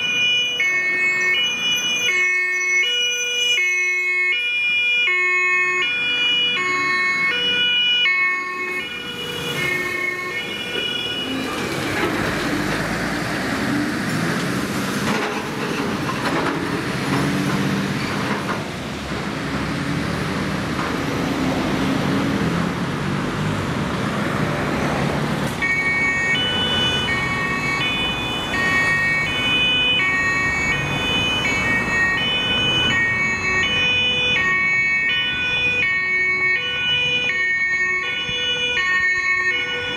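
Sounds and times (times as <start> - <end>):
two-tone emergency siren: 0.0 - 12.8, 25.5 - 39.9
heavy truck diesel engines: 0.0 - 39.9
road noise of passing trucks: 0.0 - 39.9.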